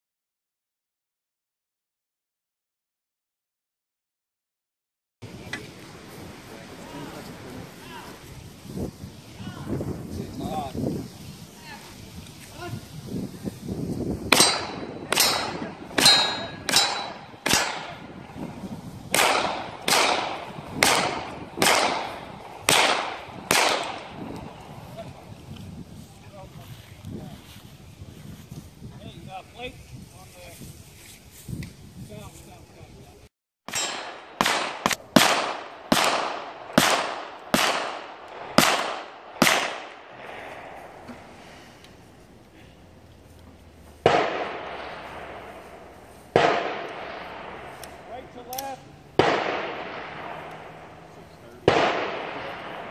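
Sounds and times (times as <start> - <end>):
gunshots: 14.3 - 18.3, 19.1 - 24.6, 33.7 - 41.0, 44.0 - 52.9
rifle shots with echo: 14.3 - 18.3, 19.1 - 24.6, 33.7 - 41.0, 44.0 - 52.9.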